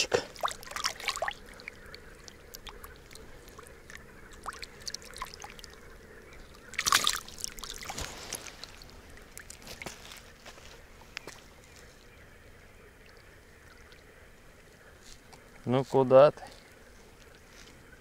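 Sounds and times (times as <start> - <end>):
water splashing and trickling: 0.0 - 18.0
loud water splash: 6.8 - 8.0.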